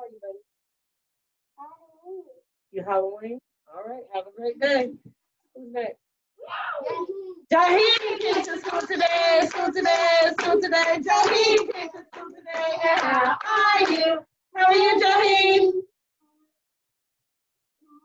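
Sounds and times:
high voices singing: 7.5s - 15.8s
hands clapping: 7.6s - 14.2s.

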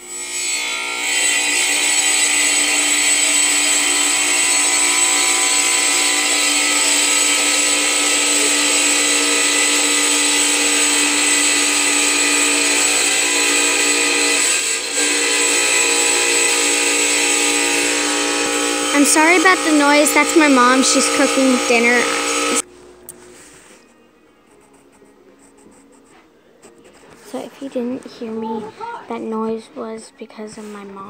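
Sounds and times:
kitchen appliance motor running: 0.0s - 22.7s.

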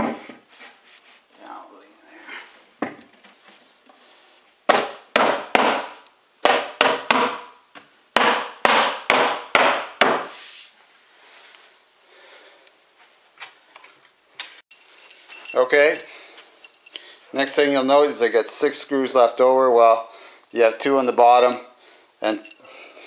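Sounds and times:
heavy knocks on wooden panel: 4.7s - 7.5s, 8.2s - 10.2s.

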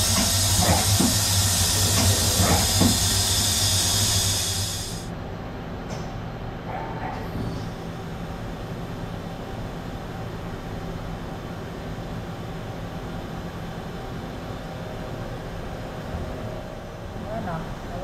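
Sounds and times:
lathe machine hum and whir: 0.0s - 5.1s.

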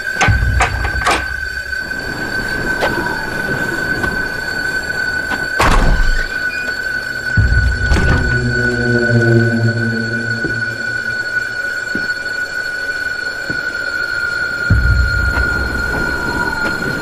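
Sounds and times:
high-pitched whine: 0.0s - 17.0s
deep boom: 7.4s - 11.5s
sharp hits: 7.4s - 11.9s.

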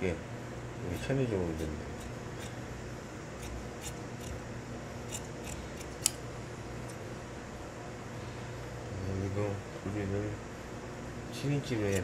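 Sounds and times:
shears snipping fabric: 0.9s - 2.6s, 3.4s - 4.4s, 5.0s - 6.2s, 11.8s - 12.0s.

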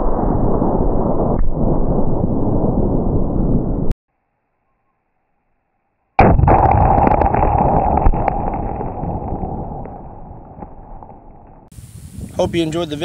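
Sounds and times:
explosion blast with rumble: 6.2s - 11.7s.

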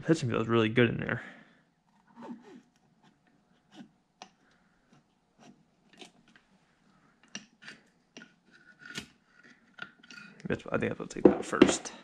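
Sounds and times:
faint clicks and taps: 7.2s - 8.4s.

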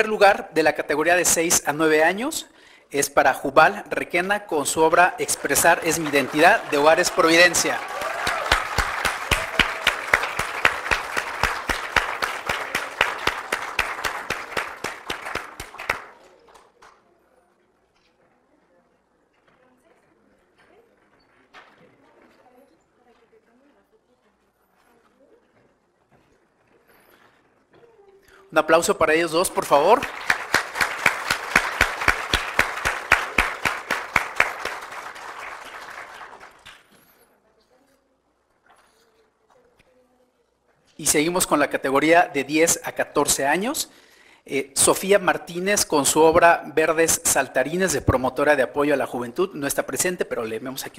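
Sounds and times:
audience applauding: 4.5s - 16.9s, 29.1s - 37.1s
person clapping close to microphone: 5.2s - 16.2s, 29.6s - 37.0s.

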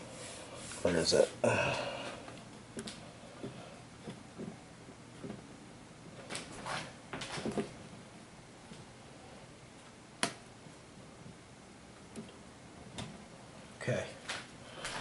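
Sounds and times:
soft taps and rustling: 2.5s - 5.5s.

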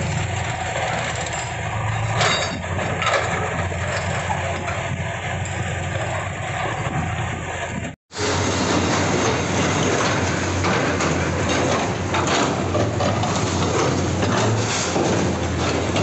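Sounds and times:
excavator diesel engines running: 0.0s - 16.0s
masonry crunching and rubble falling: 8.3s - 16.0s.

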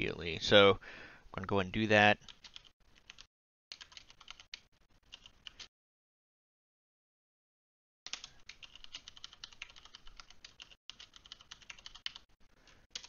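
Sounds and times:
typing on computer keyboard: 2.3s - 5.7s, 8.1s - 13.0s.

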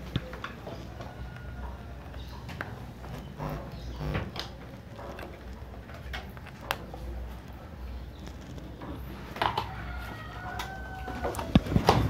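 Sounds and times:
low steady hum: 2.8s - 6.7s.

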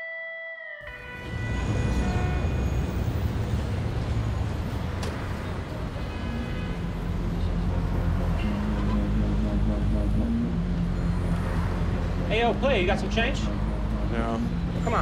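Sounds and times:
low rumble of cars: 0.9s - 15.0s
low hum: 6.8s - 15.0s.

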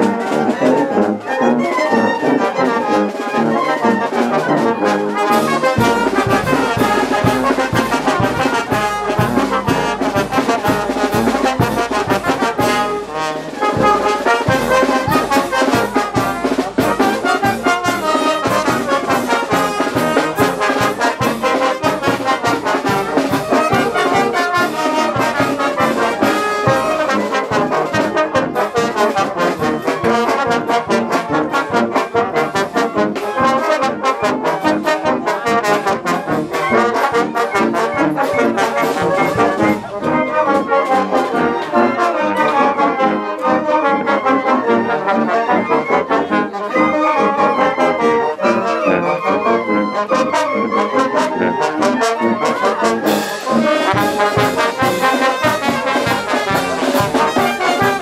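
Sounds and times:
trumpets and trombones: 0.0s - 58.0s
steady drum beat: 5.3s - 27.2s, 53.2s - 58.0s.

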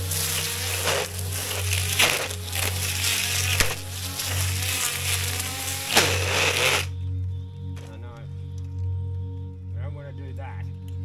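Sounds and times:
trimmer line cutting grass: 0.0s - 6.9s
string trimmer motor whine: 0.0s - 7.0s.

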